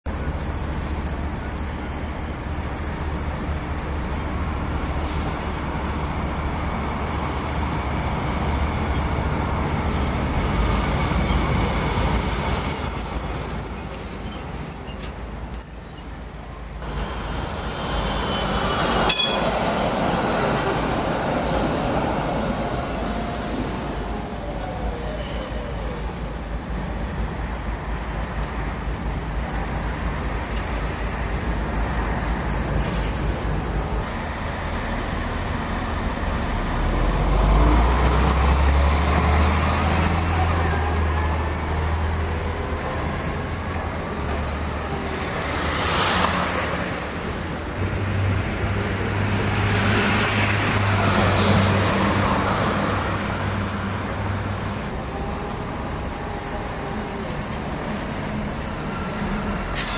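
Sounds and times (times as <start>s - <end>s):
trams passing: 0.1s - 59.9s
vehicles swishing past: 28.5s - 59.9s.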